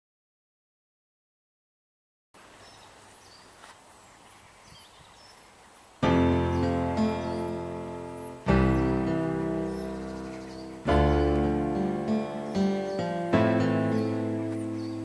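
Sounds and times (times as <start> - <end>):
piano playing slow chords: 6.0 - 15.0.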